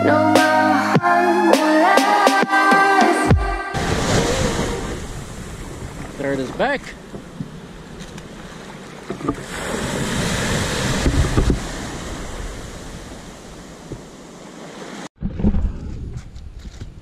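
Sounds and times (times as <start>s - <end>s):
wind rumbling on microphone: 3.8s - 14.2s, 15.2s - 17.0s
small waves on sandy beach: 3.8s - 15.1s.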